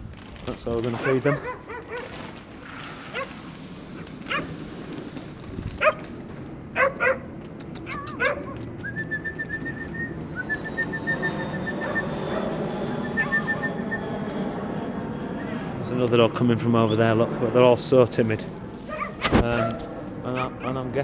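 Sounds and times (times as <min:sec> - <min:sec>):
dogs barking: 0:01.0 - 0:02.1, 0:03.1 - 0:03.3, 0:04.3 - 0:04.5, 0:05.8 - 0:06.1, 0:06.7 - 0:08.7, 0:10.4 - 0:13.9, 0:18.9 - 0:20.8.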